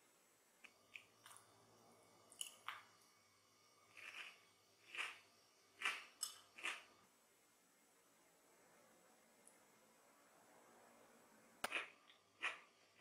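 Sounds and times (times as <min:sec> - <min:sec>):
crunchy chewing: 0:03.8 - 0:07.0, 0:11.6 - 0:13.0.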